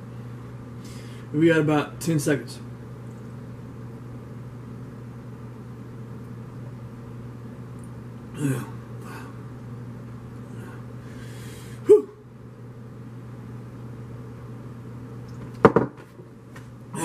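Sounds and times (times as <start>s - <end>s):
steady low hum: 0.0s - 17.0s
glass mug knocking on wooden table: 15.6s - 16.0s.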